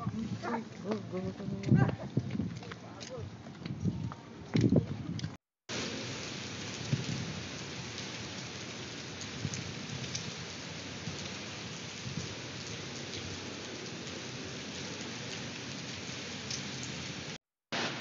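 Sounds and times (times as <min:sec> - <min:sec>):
heavy rain on pavement and cars: 0:05.7 - 0:18.0.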